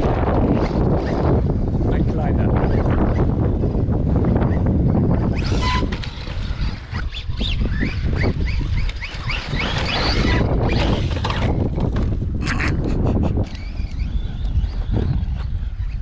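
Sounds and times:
electric motor whining: 0.0s - 16.0s
wind rumble on microphone: 0.0s - 16.0s.

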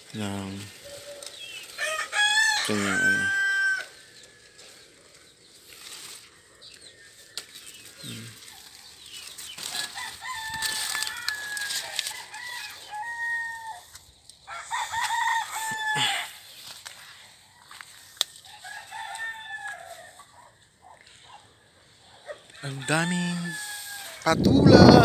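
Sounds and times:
leaves rustling: 0.0s - 25.0s
rooster crowing: 1.0s - 4.5s, 9.7s - 16.4s, 18.4s - 20.5s, 22.5s - 24.3s.

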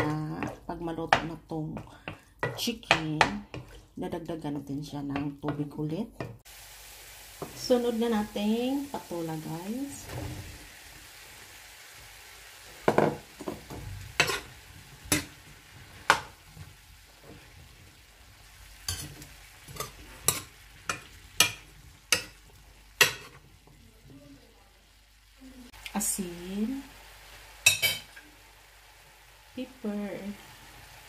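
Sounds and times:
spatula clacking on pan: 0.0s - 3.8s, 12.8s - 14.5s, 15.1s - 15.4s, 16.0s - 16.4s, 18.9s - 23.4s, 27.6s - 28.2s
faint sizzle: 0.0s - 31.0s.

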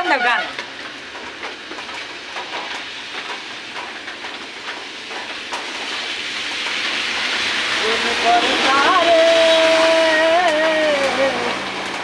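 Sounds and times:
rain on a wet road: 0.0s - 12.0s
vehicle tyres on wet road: 0.0s - 12.0s.

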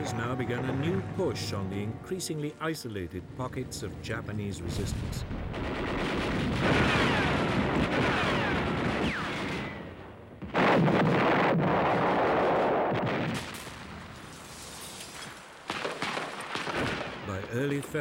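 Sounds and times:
loud explosion rumbling: 4.6s - 13.8s
gunfire: 5.4s - 13.8s, 15.7s - 17.3s.

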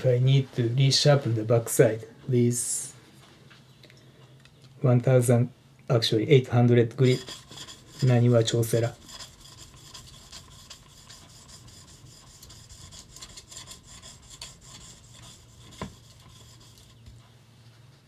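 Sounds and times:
blade scraping on whetstone: 7.0s - 17.2s.

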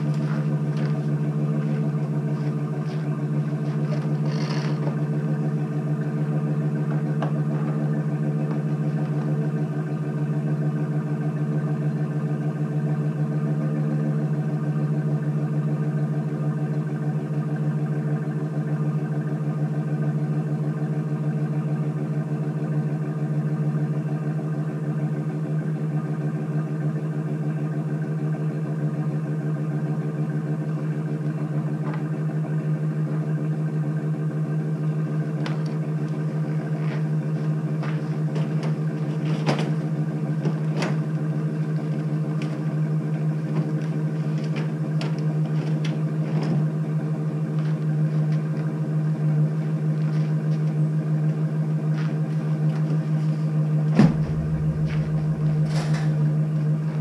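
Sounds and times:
engine idling: 0.0s - 57.0s
sharp knocks and clatters: 53.8s - 57.0s.

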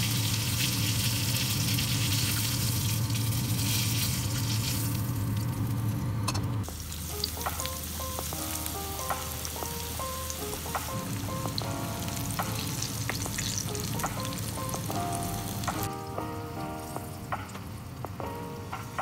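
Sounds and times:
deep-frying sizzle with pops: 0.0s - 19.0s
soft background music: 6.6s - 19.0s.

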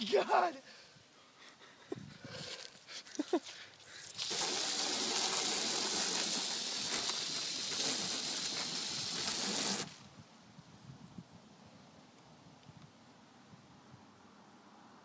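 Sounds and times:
hissing spray: 4.1s - 10.0s.

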